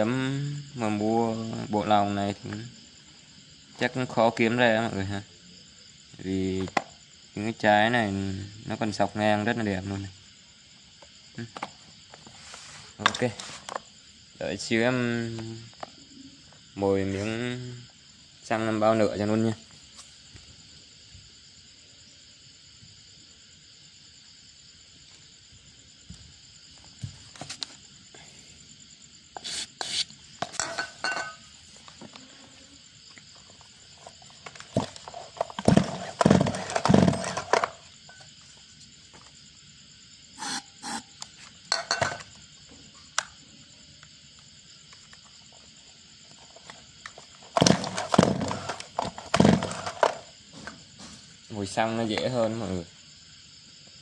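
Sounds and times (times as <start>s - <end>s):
chainsaw being pull-started: 34.8s - 37.8s, 47.5s - 50.2s.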